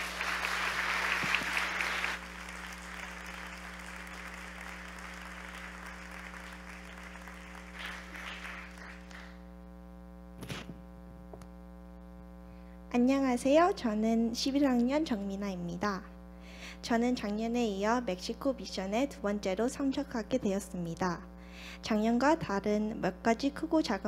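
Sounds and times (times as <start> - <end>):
audience applauding: 0.0 - 9.4
steady hum: 0.0 - 24.0.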